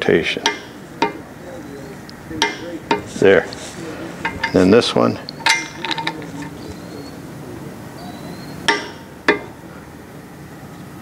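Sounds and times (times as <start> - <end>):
metal socket clinking on bolt: 5.3 - 6.6.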